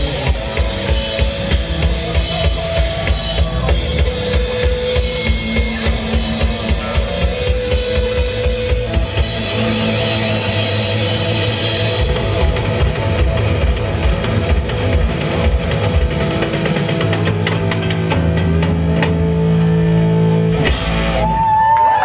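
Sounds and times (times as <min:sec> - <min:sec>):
live rock band playing: 0:00.0 - 0:22.0.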